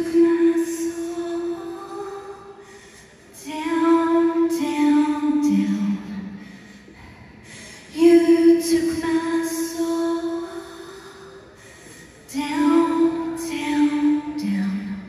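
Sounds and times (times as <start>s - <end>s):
woman singing long notes: 12.3s - 15.0s.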